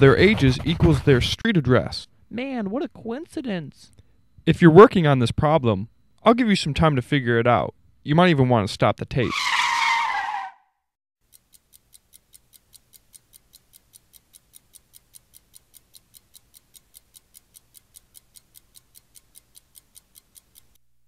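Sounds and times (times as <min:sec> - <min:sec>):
fast clock ticking: 0:11.2 - 0:20.8.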